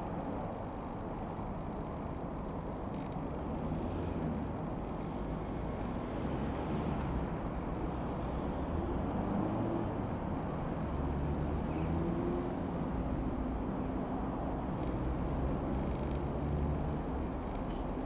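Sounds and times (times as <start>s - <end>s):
outdoor rumble: 1.8s - 18.0s.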